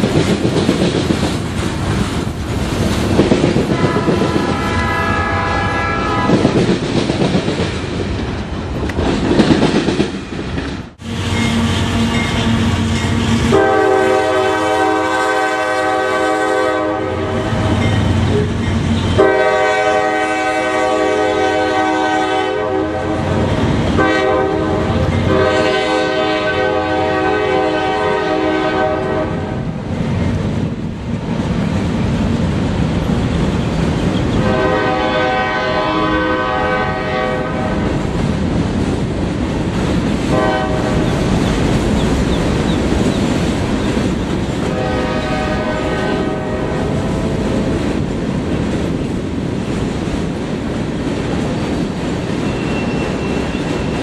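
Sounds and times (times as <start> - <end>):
freight train rumble and wheel clatter: 0.0 - 54.0
locomotive air horn blasts: 3.7 - 6.4, 11.1 - 23.4, 24.0 - 29.6, 34.4 - 37.9, 40.3 - 41.0, 44.6 - 47.4.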